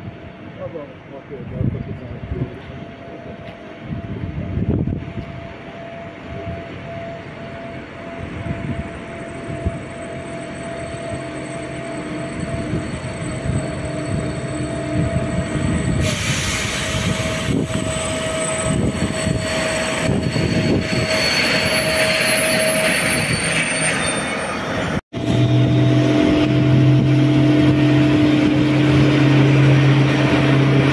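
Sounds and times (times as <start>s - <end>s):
locomotive hum: 0.0s - 30.9s
hiss of wheels on rail: 16.0s - 18.3s.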